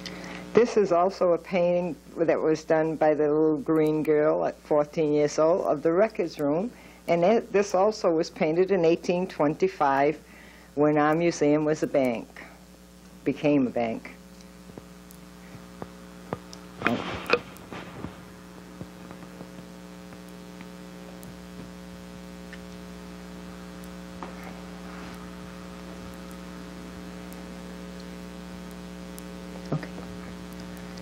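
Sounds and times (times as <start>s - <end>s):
electrical hum: 0.0s - 31.0s
short noise: 16.8s - 19.4s.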